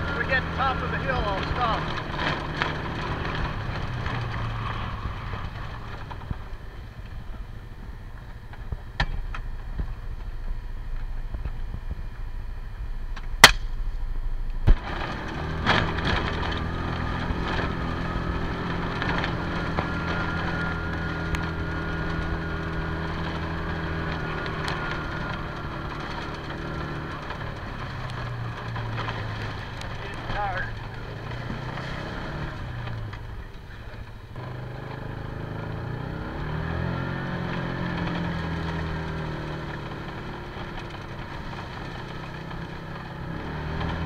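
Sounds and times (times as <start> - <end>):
utility vehicle engine running: 0.0 - 44.0
sharp loud cracks: 13.2 - 14.0
vehicle body rattling and knocking: 14.6 - 34.3.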